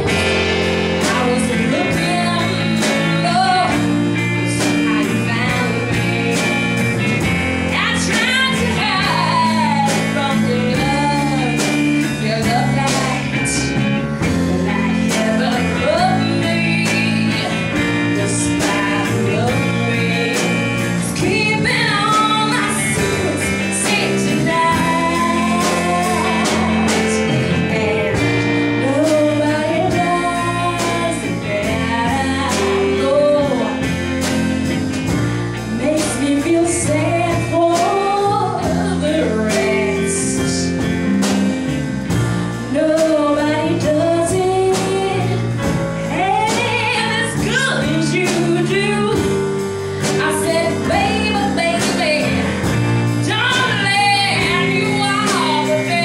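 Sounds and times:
woman singing: 0.0 - 41.5, 42.5 - 56.0
live rock band playing: 0.0 - 56.0.

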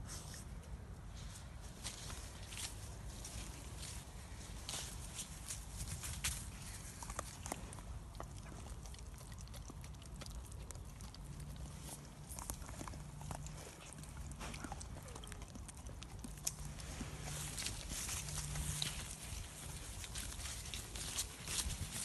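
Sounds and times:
dogs licking and smacking: 6.8 - 21.4.

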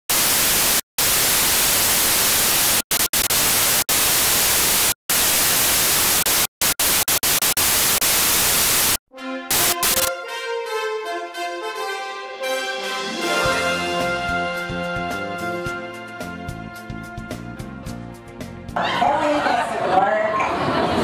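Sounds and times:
loud static hiss: 0.1 - 10.1
intro theme music: 9.1 - 18.8.

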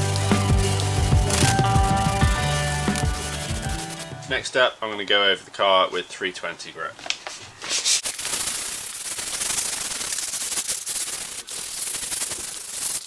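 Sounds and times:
sandpaper rasping: 0.0 - 4.3, 7.6 - 13.0.

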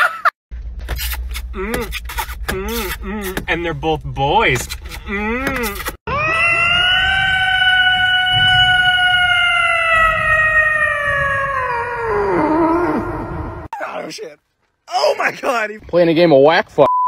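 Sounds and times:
cat yowling: 6.1 - 13.0.

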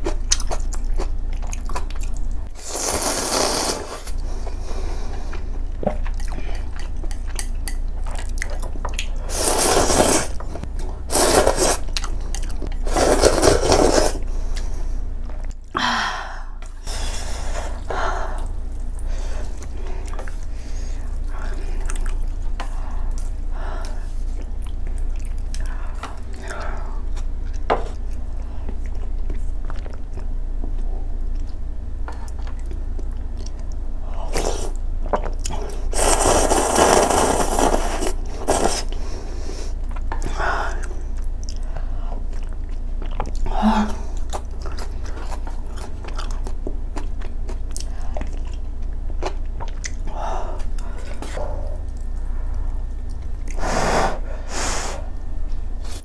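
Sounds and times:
chewing and wet eating sounds: 0.0 - 3.2, 4.0 - 15.7, 17.4 - 53.6
person slurping noodles: 2.6 - 4.1, 9.3 - 10.4, 11.1 - 11.8, 12.8 - 14.2, 35.9 - 38.9.

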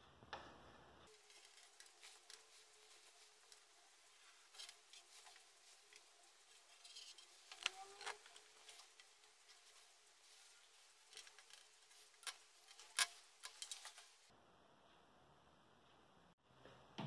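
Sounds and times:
handling clicks and rubbing: 1.1 - 14.3.

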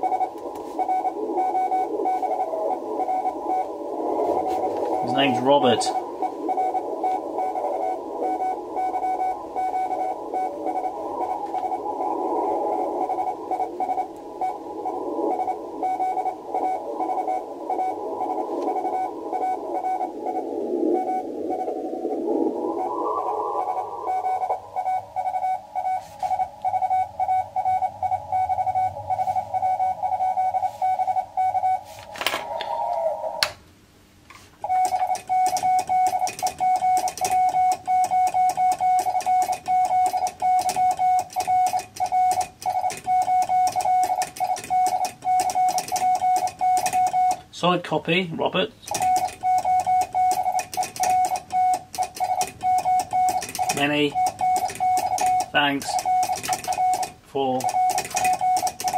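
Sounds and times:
keyed sidetone: 0.0 - 3.8, 4.4 - 12.0, 12.7 - 21.8, 22.7 - 31.9, 34.6 - 47.4, 48.9 - 58.9
morse code tone: 0.0 - 21.8, 22.7 - 32.0, 34.6 - 47.4, 48.8 - 58.9
radio band hiss: 0.0 - 33.5, 53.3 - 58.9.

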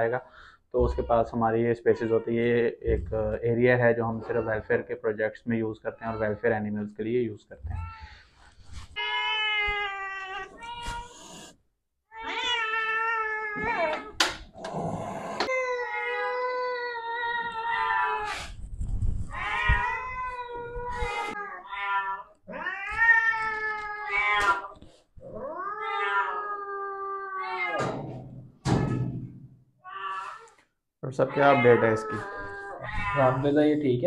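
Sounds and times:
angry cat yowling: 25.4 - 27.9, 29.9 - 30.6, 31.3 - 33.5.

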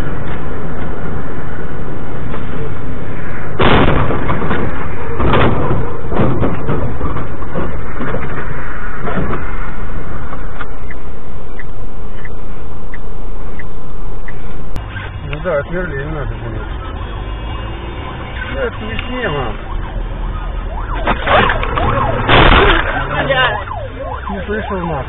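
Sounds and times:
truck rumbling on road: 0.0 - 25.0
car crashing into truck: 3.6 - 8.4, 21.0 - 23.2
knocks and rattles: 4.1 - 9.5.

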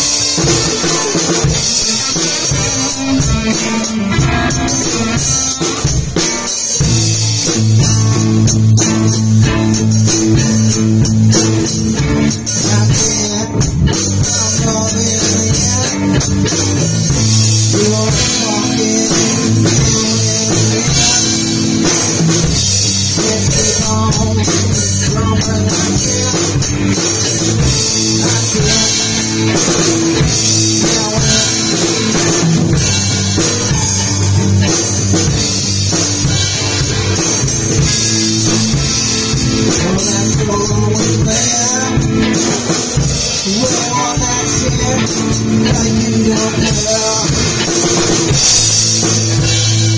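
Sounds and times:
rock band playing: 0.0 - 49.9.

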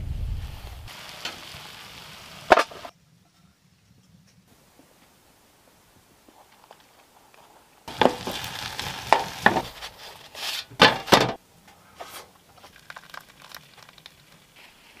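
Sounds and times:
food sizzling in a pan: 0.9 - 2.9, 7.9 - 9.8
utensil knocking and scraping pan: 7.9 - 11.3.

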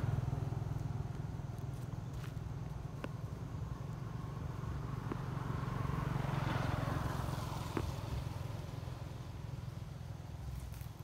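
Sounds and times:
steady low rumble: 0.0 - 6.2
motor vehicle passing: 0.0 - 11.0.

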